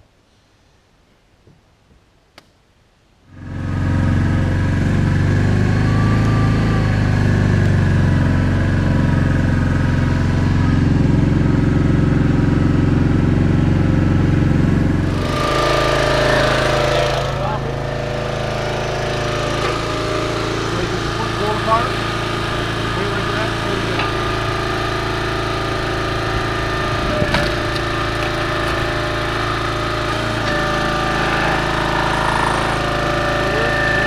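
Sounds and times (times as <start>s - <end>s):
engine starting and idling: 14.9s - 34.0s.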